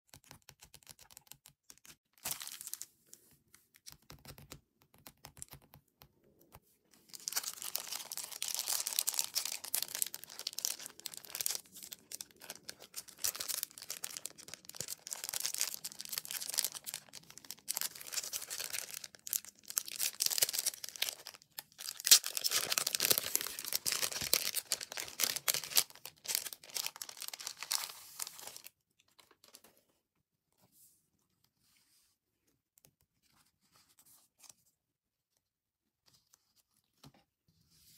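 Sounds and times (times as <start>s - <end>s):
plastic sleeve crinkling: 2.2s - 2.9s, 7.1s - 28.7s.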